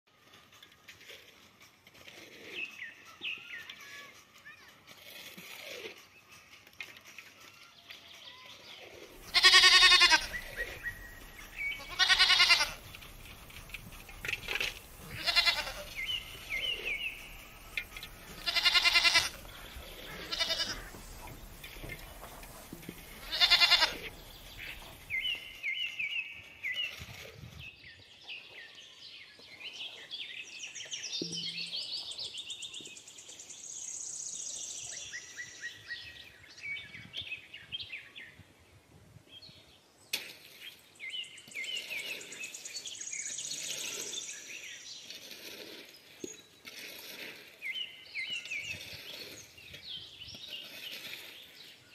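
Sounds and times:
high chirping and twittering: 0:07.8 - 0:27.0
goats bleating: 0:09.2 - 0:10.9, 0:11.6 - 0:12.9, 0:15.0 - 0:16.7, 0:18.2 - 0:21.0, 0:23.0 - 0:25.0.

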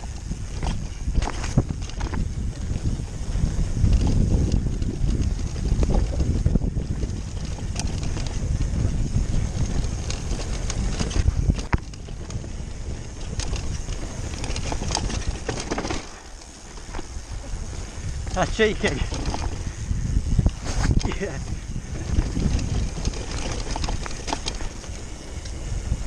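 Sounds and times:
bike clicks and knocks: 0:00.0 - 0:26.0
tyres rolling over dirt trail: 0:00.0 - 0:26.0
wind buffeting microphone: 0:00.0 - 0:26.0.

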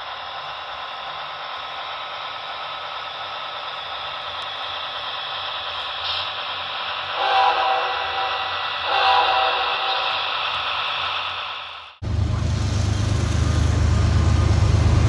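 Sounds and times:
model train running on track: 0:00.0 - 0:15.0
multi-pitch train horn tone: 0:07.2 - 0:10.2.

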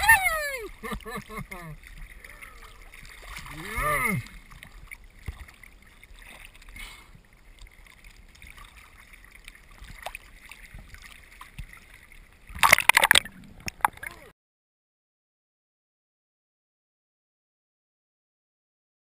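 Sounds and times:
small waves lapping: 0:00.0 - 0:14.3
water splashing over camera: 0:00.0 - 0:14.3.

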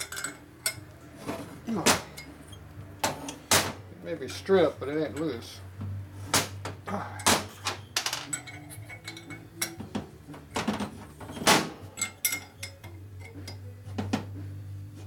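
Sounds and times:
metal hand tools clinking: 0:00.0 - 0:00.9, 0:07.2 - 0:09.8, 0:11.9 - 0:13.7.

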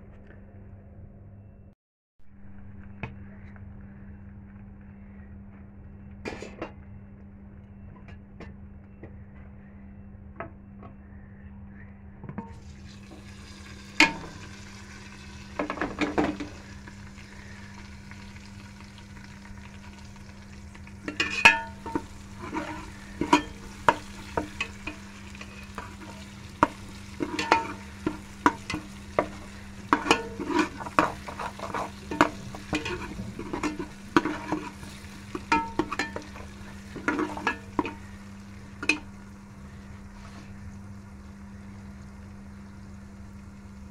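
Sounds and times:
steady low hum: 0:00.0 - 0:43.9
faint sizzling in oil: 0:12.5 - 0:43.9
ladle scraping metal pot: 0:21.0 - 0:38.1.

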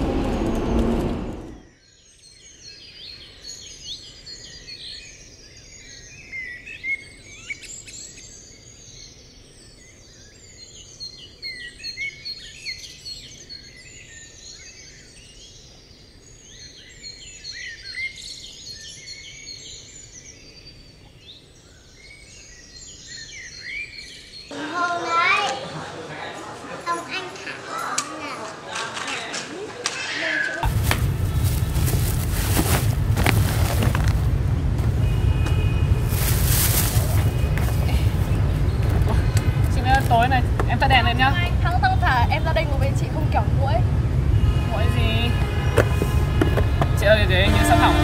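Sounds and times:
small birds chirping and twittering: 0:01.5 - 0:24.6, 0:35.0 - 0:43.9.

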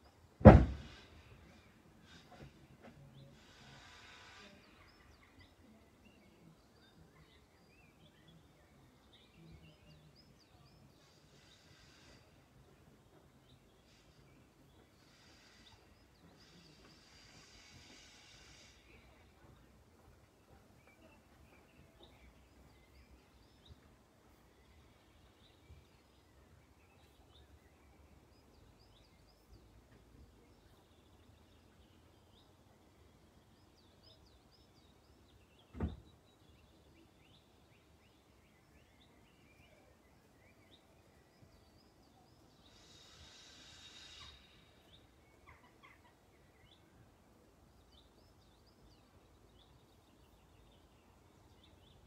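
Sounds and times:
dull thump: 0:00.4 - 0:01.1, 0:35.7 - 0:36.1
faint bird chirps: 0:00.9 - 0:52.0.

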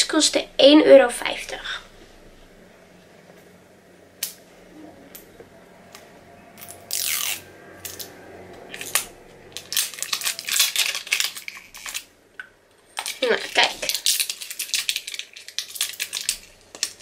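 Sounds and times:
packaging tearing: 0:06.6 - 0:08.1, 0:08.8 - 0:12.1, 0:13.0 - 0:17.0
packaging crinkling: 0:08.8 - 0:12.1, 0:13.0 - 0:17.0.

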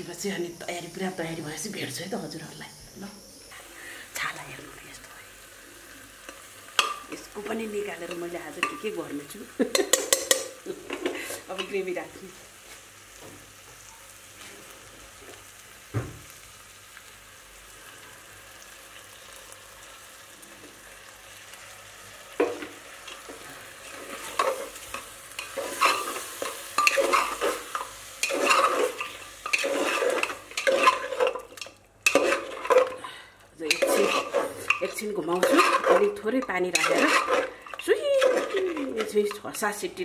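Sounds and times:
meat sizzling in a pot: 0:00.0 - 0:40.0
knock: 0:16.0 - 0:16.2
metal spoon scraping a pot: 0:23.1 - 0:33.0, 0:33.6 - 0:39.6.

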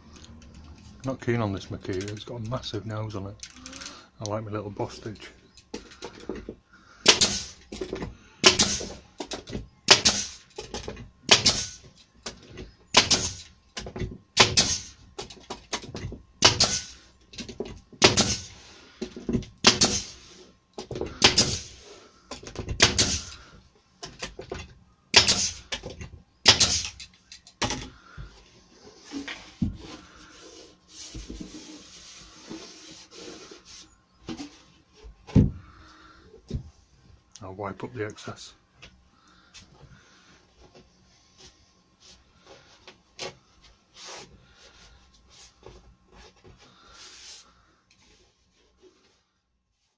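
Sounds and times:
nail gun firing into wood: 0:07.0 - 0:07.6, 0:08.4 - 0:08.9, 0:09.9 - 0:10.4, 0:11.3 - 0:11.8, 0:12.9 - 0:13.5, 0:14.4 - 0:14.9, 0:16.4 - 0:16.9, 0:18.0 - 0:18.5, 0:19.6 - 0:20.2, 0:21.2 - 0:21.7, 0:22.8 - 0:23.3, 0:25.1 - 0:25.6, 0:26.4 - 0:27.0
rubbing and handling of wood: 0:14.9 - 0:24.8, 0:26.9 - 0:49.9.

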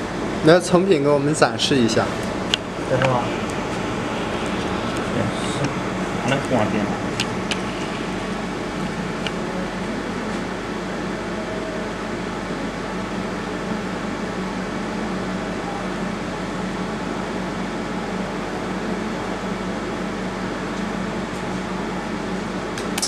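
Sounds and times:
cooling fan humming: 0:00.0 - 0:23.0
low drone: 0:01.8 - 0:12.3.

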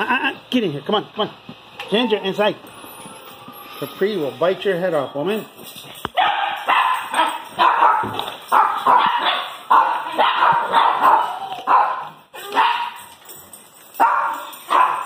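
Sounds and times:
dogs barking: 0:06.1 - 0:13.1, 0:13.9 - 0:15.0.

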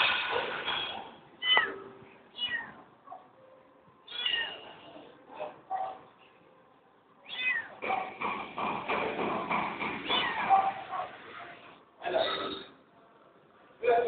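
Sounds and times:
kitten mewing: 0:02.4 - 0:02.8, 0:04.1 - 0:04.8, 0:07.3 - 0:07.8, 0:10.0 - 0:10.6.

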